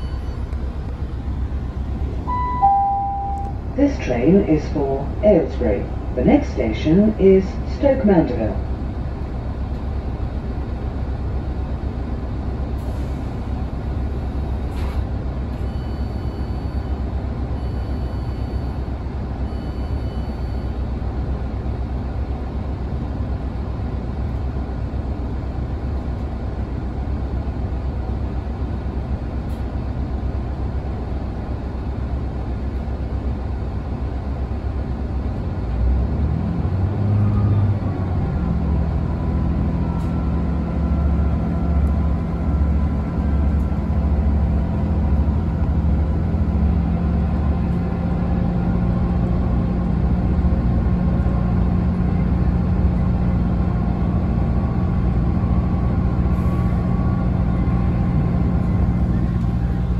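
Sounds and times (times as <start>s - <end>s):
short electronic beeps: 0.0s - 0.5s, 2.3s - 3.6s, 15.6s - 16.9s, 17.6s - 18.8s, 19.4s - 20.7s
diesel train engine idling: 0.0s - 59.9s.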